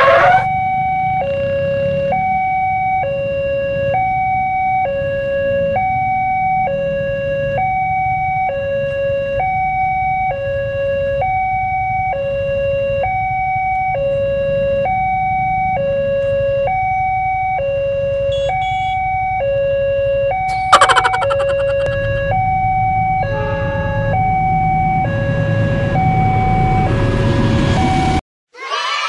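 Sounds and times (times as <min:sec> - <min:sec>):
level crossing two-tone alarm: 0:20.5 - 0:22.1.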